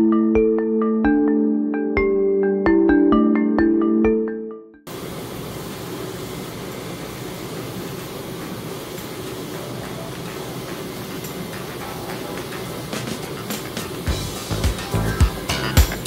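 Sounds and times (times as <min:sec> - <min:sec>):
printer whirring: 0:04.9 - 0:16.0.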